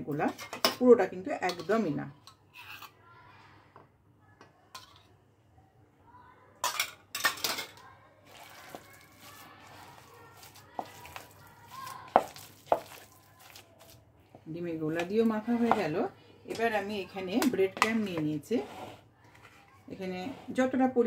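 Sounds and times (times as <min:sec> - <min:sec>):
hands mixing mash: 0:08.2 - 0:19.1.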